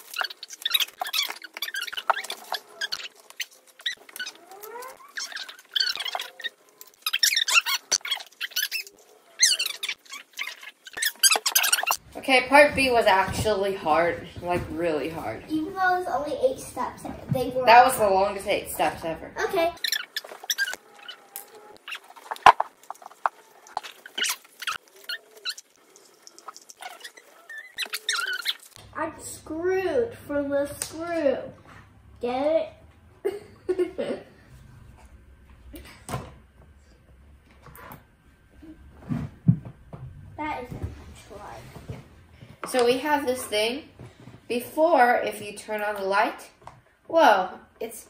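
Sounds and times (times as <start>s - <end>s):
paper and card rustling: 0.0s - 12.0s, 19.8s - 28.8s
sped-up squeaky voices: 0.0s - 12.0s, 19.4s - 28.8s
handling noise: 19.8s - 28.8s.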